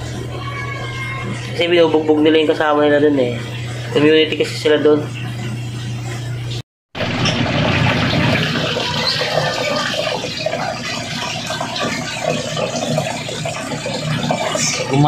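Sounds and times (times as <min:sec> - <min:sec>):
aquarium water splashing: 0:00.0 - 0:15.0.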